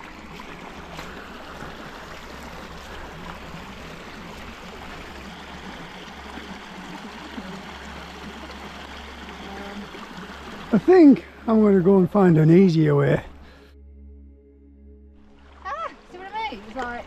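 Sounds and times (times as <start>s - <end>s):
stream rushing over stones: 0.0s - 13.2s.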